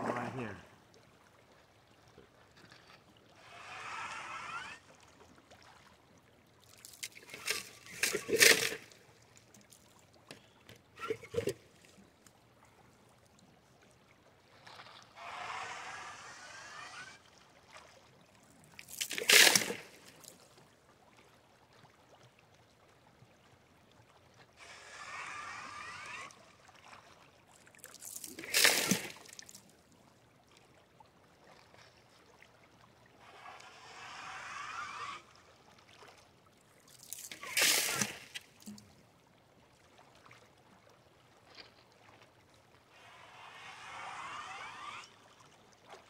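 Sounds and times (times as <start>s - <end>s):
suction tube slurping water: 0.0s - 0.7s, 2.6s - 5.9s, 6.6s - 12.2s, 14.4s - 20.5s, 24.6s - 29.7s, 33.0s - 36.1s, 36.8s - 38.9s, 42.7s - 46.0s
water splashes: 0.0s - 46.0s.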